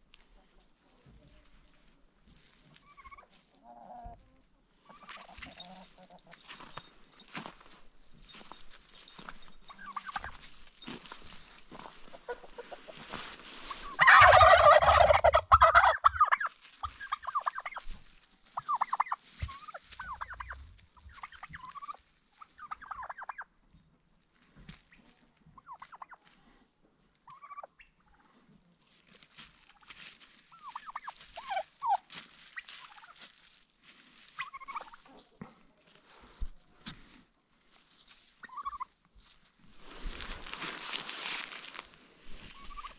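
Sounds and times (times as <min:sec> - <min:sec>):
turkeys gobbling: 0:02.8 - 0:04.2, 0:04.8 - 0:06.8, 0:09.2 - 0:23.6, 0:25.0 - 0:26.4, 0:27.2 - 0:28.3, 0:29.4 - 0:33.4, 0:34.2 - 0:35.7, 0:38.2 - 0:39.0, 0:42.4 - 0:42.9.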